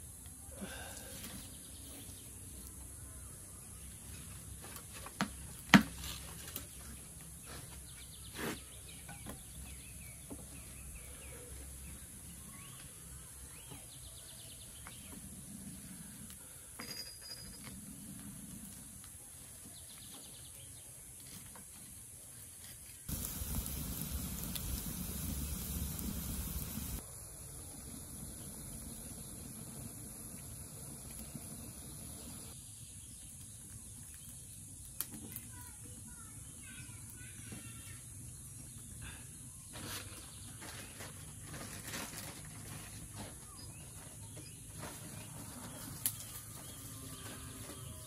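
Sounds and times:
wood fire burning: 23.1s - 35.5s, 45.4s - 46.6s.

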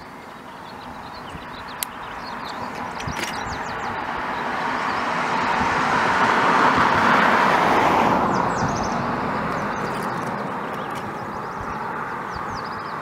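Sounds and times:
vehicle passing road noise: 0.0s - 13.0s.

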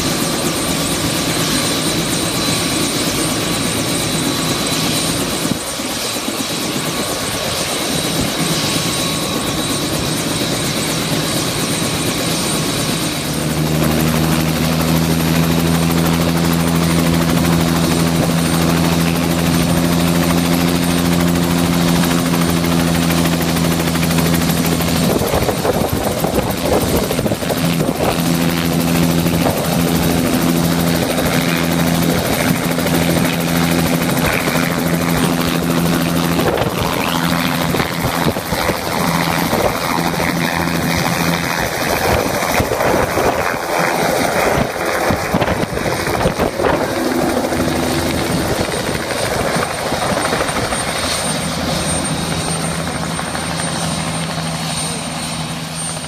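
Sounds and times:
helicopter rotor beat: 0.0s - 56.0s
helicopter turbine whine: 0.0s - 56.0s
wind buffeting: 24.0s - 54.1s.

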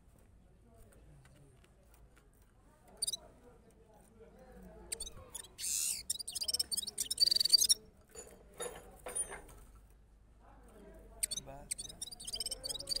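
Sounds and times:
finch singing: 4.9s - 7.8s, 11.2s - 13.0s.

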